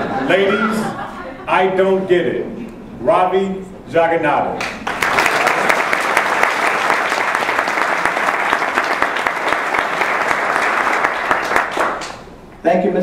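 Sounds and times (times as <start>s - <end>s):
audience applauding: 4.6s - 12.3s.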